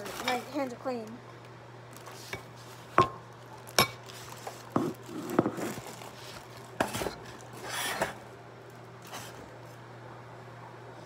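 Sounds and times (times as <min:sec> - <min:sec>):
bowls and utensils clinking: 0:02.2 - 0:04.1.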